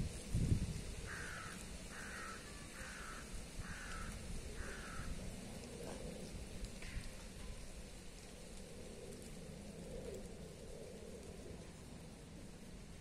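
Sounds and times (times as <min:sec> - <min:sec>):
wind buffeting microphone: 0:00.0 - 0:13.0
wind in leaves: 0:00.0 - 0:13.0
bird cawing: 0:01.0 - 0:05.2.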